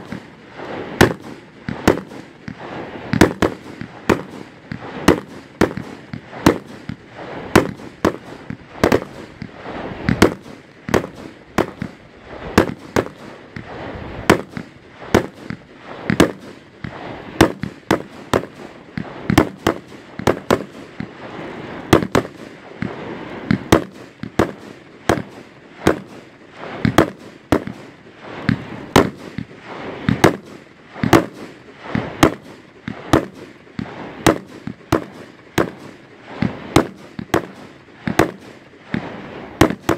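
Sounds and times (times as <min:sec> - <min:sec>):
fireworks bursting with bangs: 0:00.0 - 0:39.9
hiss and crackle of fireworks: 0:00.0 - 0:39.9.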